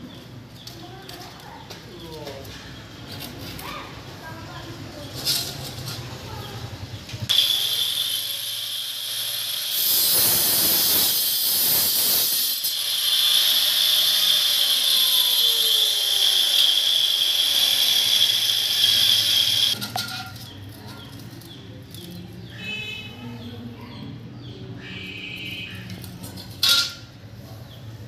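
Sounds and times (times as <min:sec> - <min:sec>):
angle grinder whining: 0:07.3 - 0:19.8
grinder disc hissing through metal: 0:07.3 - 0:20.4.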